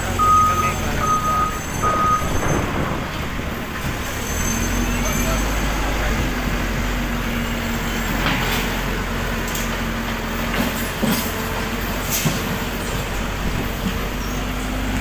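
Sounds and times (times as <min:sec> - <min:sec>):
diesel engine running: 0:00.0 - 0:15.0
debris knocking: 0:01.8 - 0:03.6.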